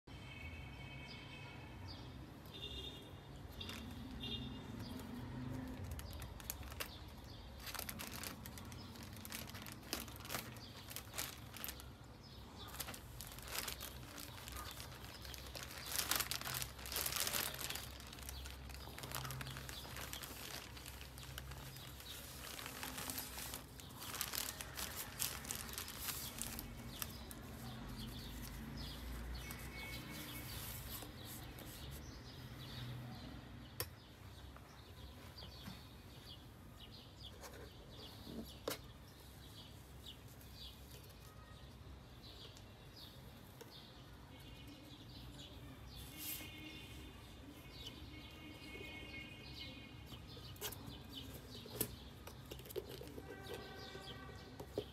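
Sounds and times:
plastic bag crinkling: 3.5s - 31.8s, 50.2s - 54.9s.

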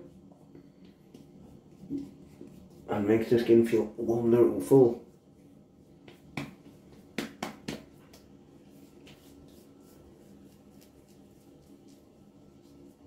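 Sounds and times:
light pats on face: 0.8s - 3.6s, 5.0s - 13.0s
hands slapping face: 6.0s - 8.3s.

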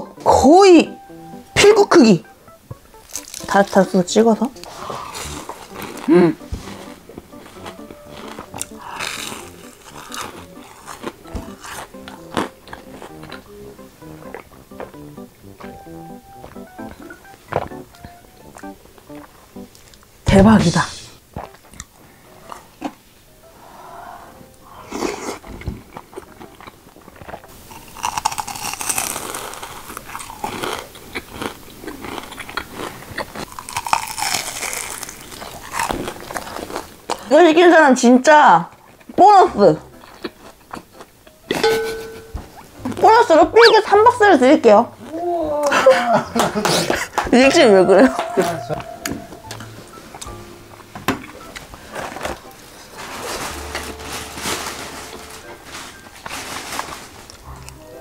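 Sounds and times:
crunchy fried food chewed: 2.9s - 15.8s, 21.3s - 23.0s, 24.8s - 37.3s, 38.7s - 39.2s, 39.8s - 41.6s.

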